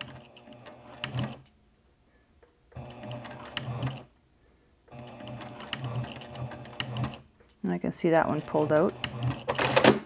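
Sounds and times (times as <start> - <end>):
sewing machine stitching: 0.0 - 1.5, 2.8 - 4.1, 4.9 - 7.3, 8.1 - 10.0.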